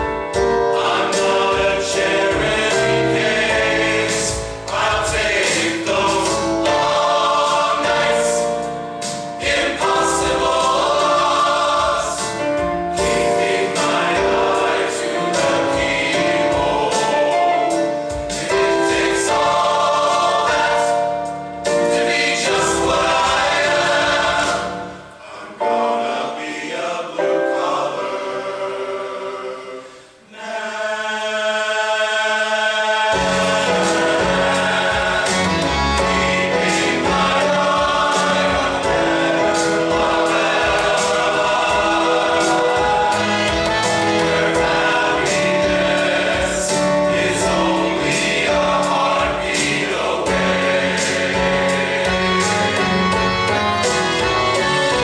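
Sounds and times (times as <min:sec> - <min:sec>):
men's choir singing: 0:00.3 - 0:55.0.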